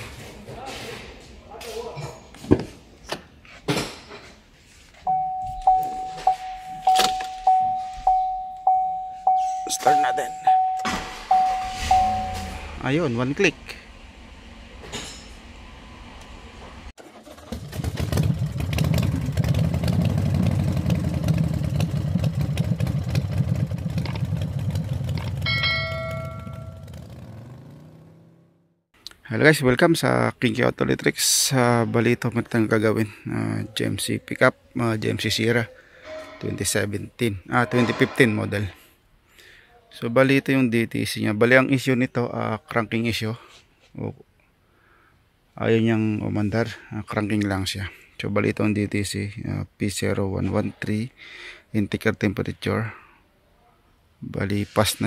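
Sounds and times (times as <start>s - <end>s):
dashboard warning chime: 5.0s - 12.9s, 25.5s - 27.0s
notification bell ding: 5.1s - 12.8s, 25.5s - 27.0s.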